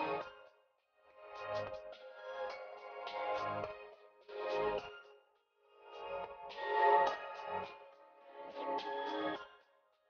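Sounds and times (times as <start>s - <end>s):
melodic instrumental music: 0.0s - 0.5s, 5.8s - 9.5s.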